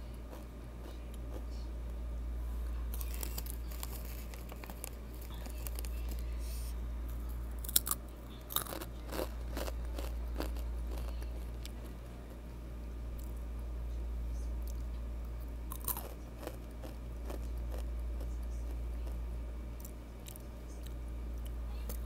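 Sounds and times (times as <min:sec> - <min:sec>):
steady low hum: 0:00.0 - 0:22.0
crunching and chewing chips: 0:00.1 - 0:01.6, 0:02.9 - 0:12.4, 0:13.2 - 0:13.5, 0:15.7 - 0:22.0.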